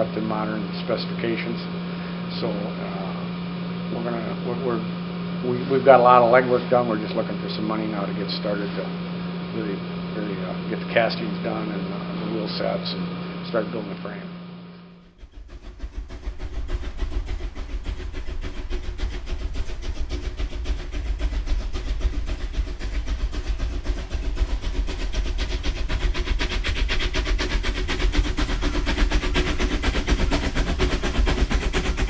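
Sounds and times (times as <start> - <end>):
steam locomotive exhaust chuffs: 0.0 - 14.3, 14.9 - 32.0
low rumble: 15.0 - 32.0.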